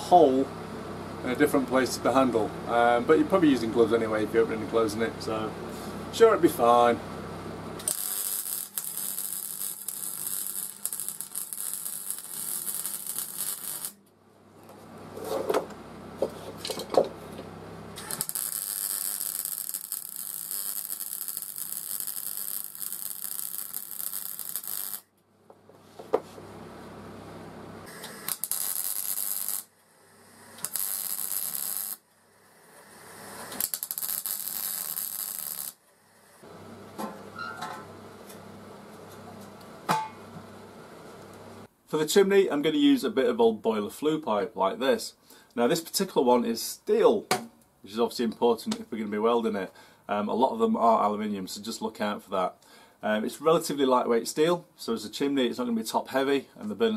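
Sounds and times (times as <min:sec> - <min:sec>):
welding arc crackling: 0:07.8 - 0:14.0, 0:18.0 - 0:25.1, 0:27.8 - 0:36.6.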